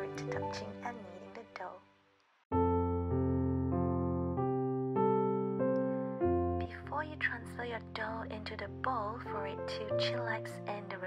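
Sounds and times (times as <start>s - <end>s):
background music held chords: 0.0s - 1.7s.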